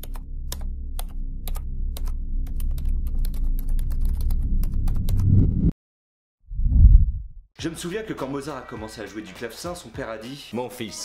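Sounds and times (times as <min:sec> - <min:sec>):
keyboard typing: 0:00.0 - 0:05.3
steady low drone: 0:00.0 - 0:05.7.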